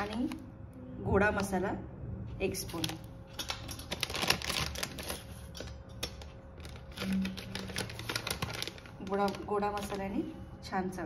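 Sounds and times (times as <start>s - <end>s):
small clicks and crinkles: 2.7s - 10.2s.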